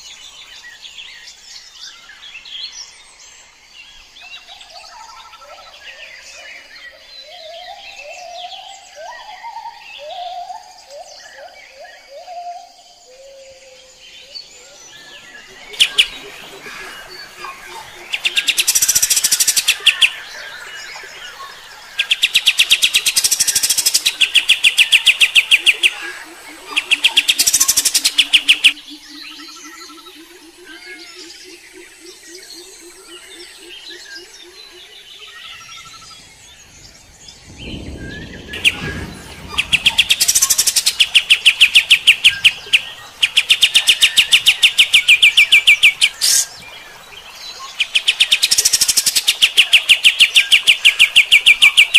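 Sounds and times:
bird singing rattling trills: 35.1s - 46.7s.

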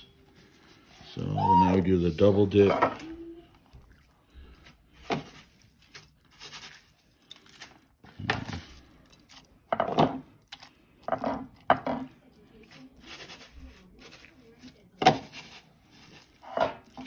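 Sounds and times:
breadcrumbs rubbing and crunching: 4.4s - 9.7s, 12.2s - 17.0s.

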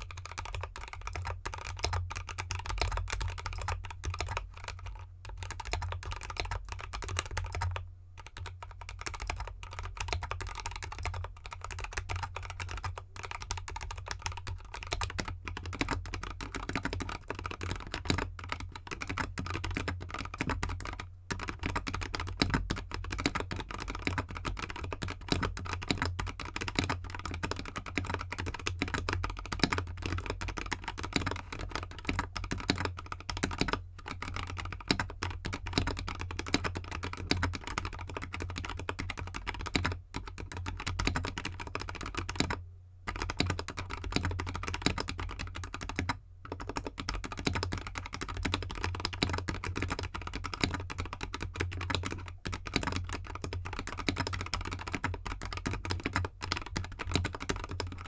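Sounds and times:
fast typing on mechanical keyboard: 0.0s - 58.0s.

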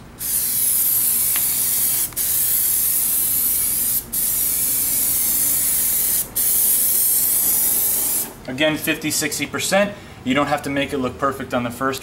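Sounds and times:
aerosol can spraying hiss: 0.2s - 8.4s.

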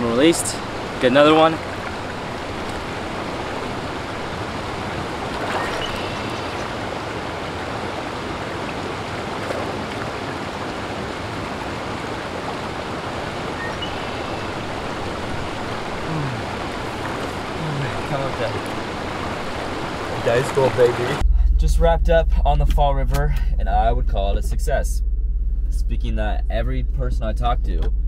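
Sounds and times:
river water flowing: 0.0s - 21.2s.

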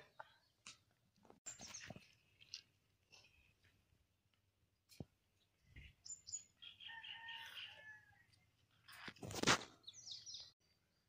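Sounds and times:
birds chirping: 5.3s - 8.5s, 9.8s - 11.0s.

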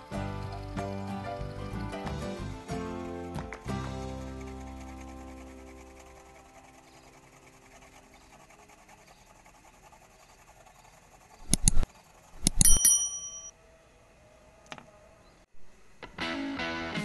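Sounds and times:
mouse clicks: 11.4s - 12.8s
bright bell ding: 12.6s - 13.5s.

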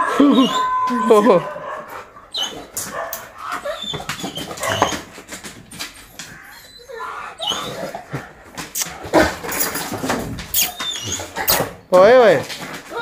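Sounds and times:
dog whining: 0.0s - 11.8s
knocks and scuffs: 2.8s - 6.5s.

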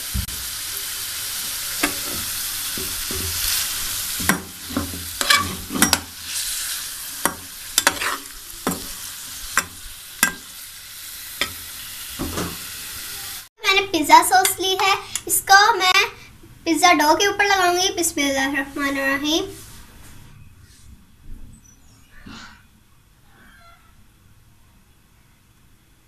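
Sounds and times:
chicken sizzling in hot oil: 0.0s - 16.2s
spoon scraping and clinking pan: 4.3s - 6.1s, 7.2s - 9.0s, 9.6s - 10.5s.

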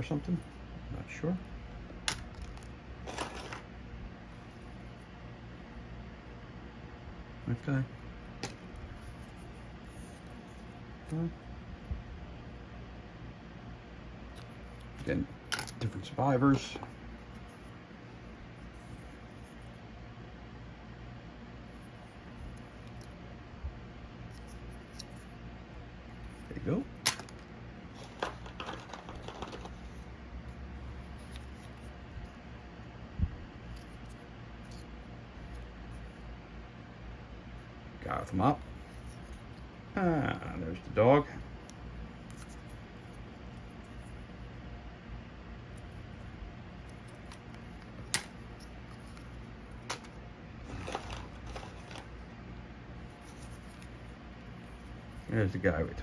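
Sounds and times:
low steady hum: 0.0s - 56.0s
cardboard and plastic handling: 27.1s - 30.0s, 46.9s - 52.1s.

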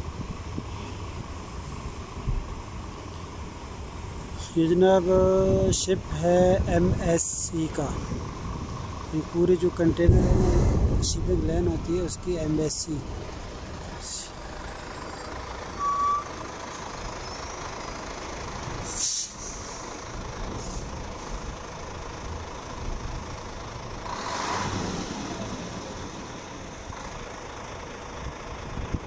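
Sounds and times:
diesel truck engine running: 0.0s - 29.0s
short high beep: 15.8s - 16.4s
hiss of air: 18.8s - 20.0s, 20.6s - 21.4s.

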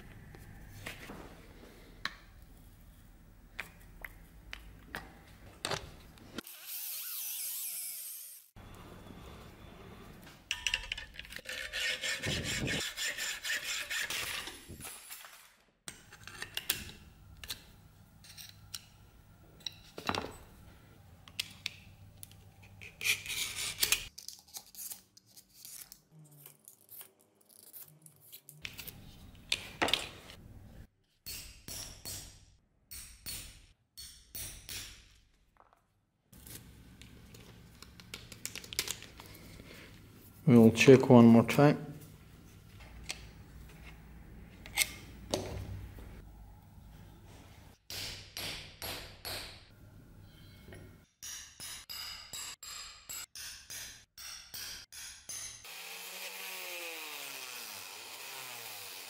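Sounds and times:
metal tools clicking and tapping: 10.4s - 11.4s
rasping cutting strokes: 11.4s - 14.8s, 55.7s - 59.0s.

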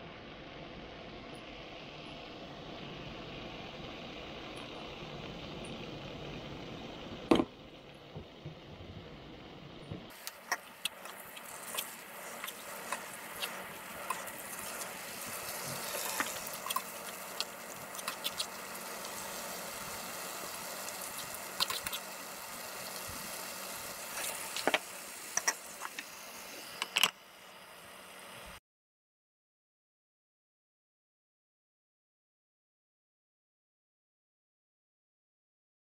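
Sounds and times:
greens sizzling in frying pan: 10.0s - 28.6s.

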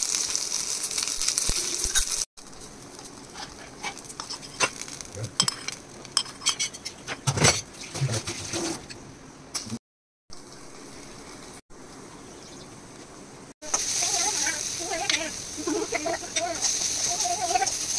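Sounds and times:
leaves sizzling in hot oil: 0.0s - 6.5s, 13.6s - 17.9s.

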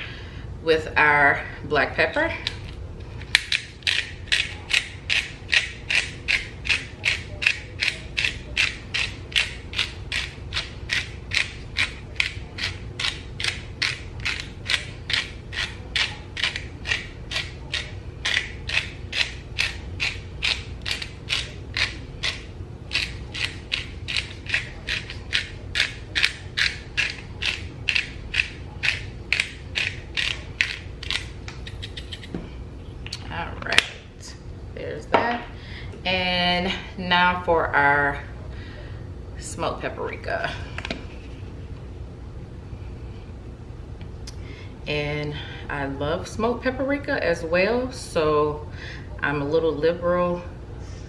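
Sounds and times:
pepper grinder grinding: 2.4s - 32.3s.

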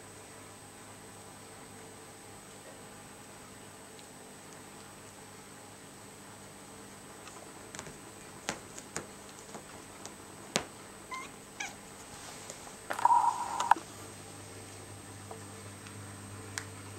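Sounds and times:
light taps and clicks: 7.3s - 10.7s
kitten meowing: 11.1s - 11.8s.

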